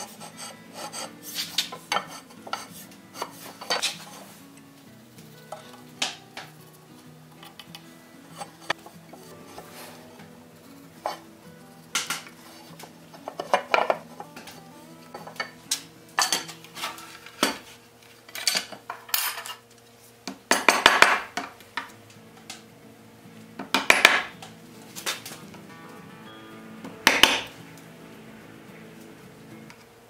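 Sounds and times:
hammer striking chisel: 0:20.5 - 0:21.3, 0:23.6 - 0:24.3, 0:27.1 - 0:27.5.

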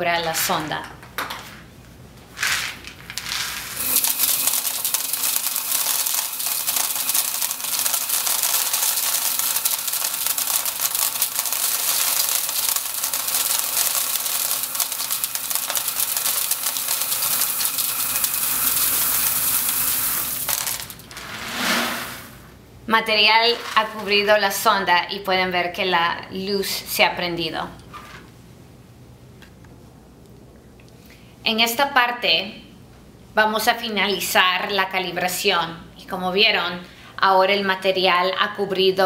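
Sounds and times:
corn kernels pouring and rattling: 0:02.4 - 0:22.4.

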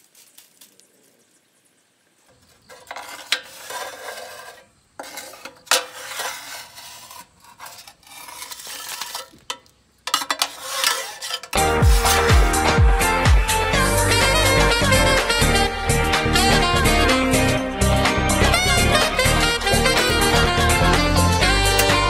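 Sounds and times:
metal rod scraping in steel box: 0:02.6 - 0:12.6, 0:17.8 - 0:22.0
music: 0:11.6 - 0:22.0.

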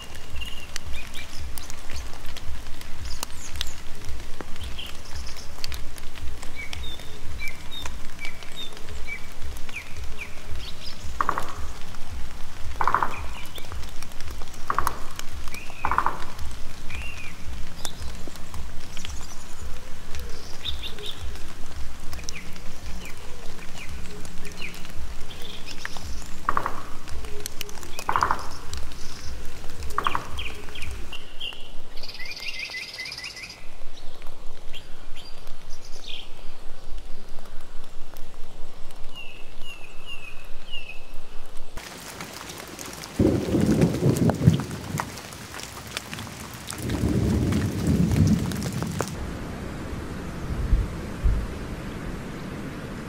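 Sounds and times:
birds chirping: 0:00.0 - 0:37.7
raindrops dripping and pattering: 0:00.0 - 0:53.0
low rumble: 0:49.1 - 0:53.0.

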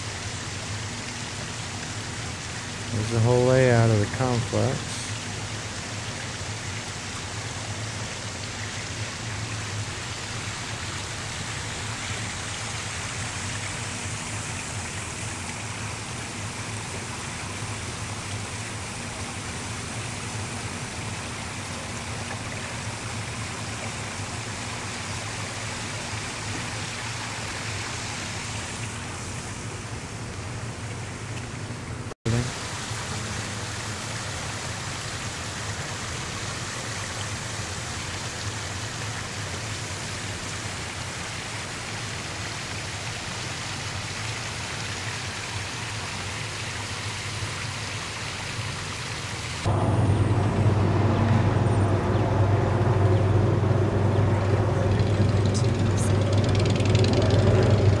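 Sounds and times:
steady rushing noise: 0:49.6 - 0:58.0
low hum: 0:49.7 - 0:58.0.

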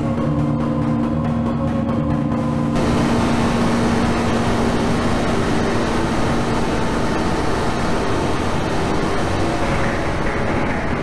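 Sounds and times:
harsh noise drone: 0:02.7 - 0:11.0.

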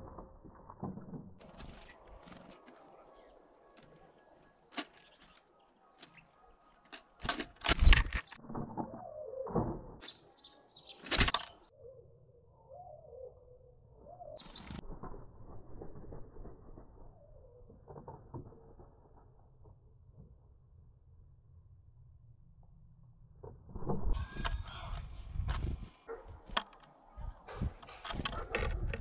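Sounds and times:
bird wing flaps: 0:01.4 - 0:08.7, 0:11.0 - 0:11.7, 0:14.4 - 0:17.1.

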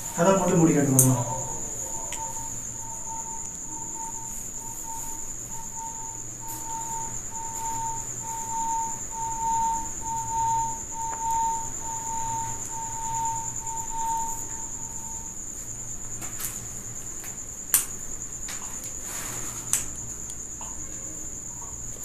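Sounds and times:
low pulsing call: 0:00.0 - 0:15.3
cricket trilling: 0:00.0 - 0:22.0.

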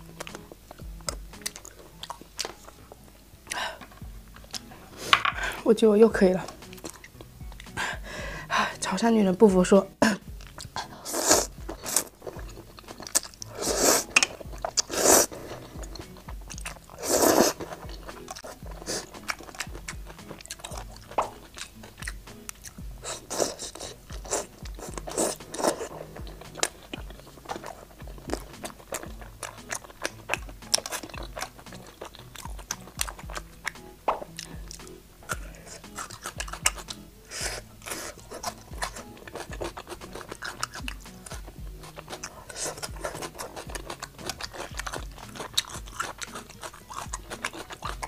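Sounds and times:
wet chewing and crunching: 0:00.0 - 0:48.0
person slurping noodles: 0:10.8 - 0:19.8, 0:23.0 - 0:33.5, 0:34.1 - 0:48.0.

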